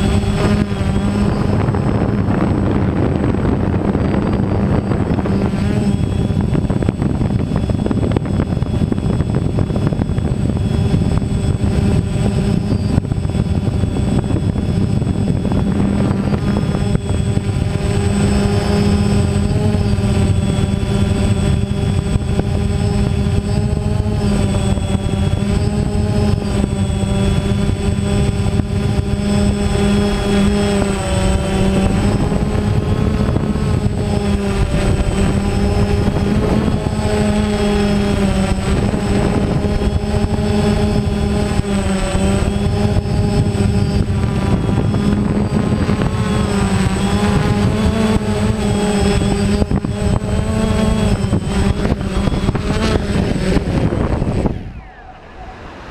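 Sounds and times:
drone motors whining: 0.0s - 55.9s
thin high whistle: 54.4s - 55.8s.

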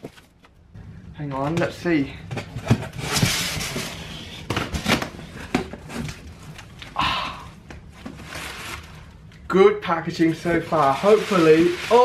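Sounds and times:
cardboard and paper rustling: 1.6s - 6.8s, 7.9s - 9.1s, 10.2s - 12.0s.

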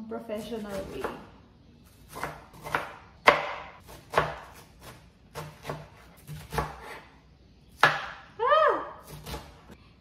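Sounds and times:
knife chopping on board: 2.1s - 7.1s, 7.8s - 8.2s.

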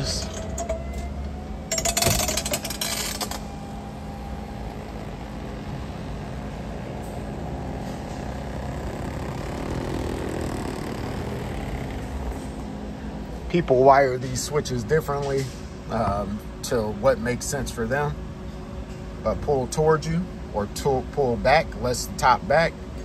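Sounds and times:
convertible top frame clattering: 0.0s - 12.8s
hydraulic pump motor running: 0.0s - 13.5s.

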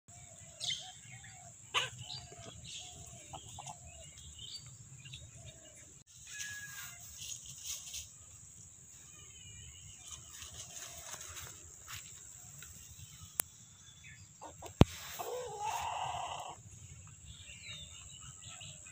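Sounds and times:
birds calling: 0.1s - 7.2s, 10.0s - 18.9s
chickens clucking softly: 1.7s - 3.9s, 14.4s - 16.6s.

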